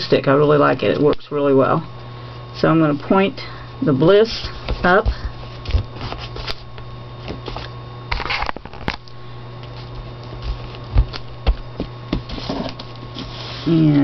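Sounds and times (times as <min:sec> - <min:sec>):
steady low hum: 0:00.0 - 0:14.0
paper rustling: 0:04.4 - 0:06.7.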